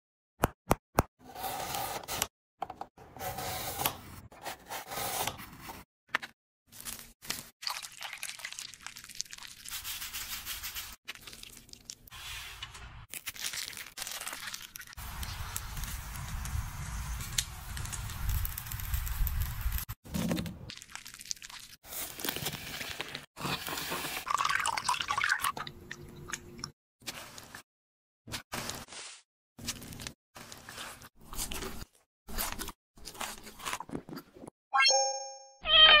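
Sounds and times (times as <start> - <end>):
skewers sizzling on grill: 15.0 - 19.9
rustling of ingredients: 28.6 - 34.4.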